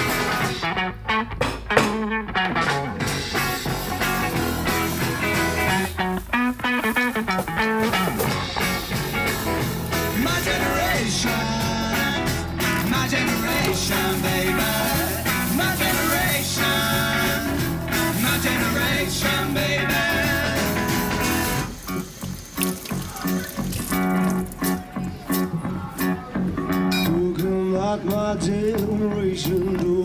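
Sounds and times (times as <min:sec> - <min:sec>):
live rock band: 0:00.0 - 0:30.0
person singing: 0:08.7 - 0:21.7, 0:24.6 - 0:30.0.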